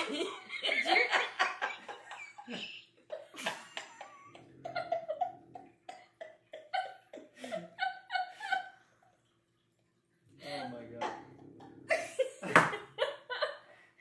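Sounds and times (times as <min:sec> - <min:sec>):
woman laughing hard: 0:00.0 - 0:08.8.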